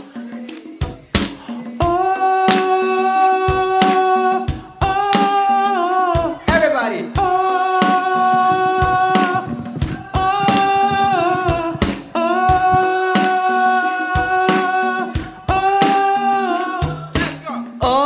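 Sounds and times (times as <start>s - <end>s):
keyboard accompaniment: 7.2s - 13.8s
person singing long held notes: 7.2s - 17.2s
percussive hits: 7.9s - 13.2s.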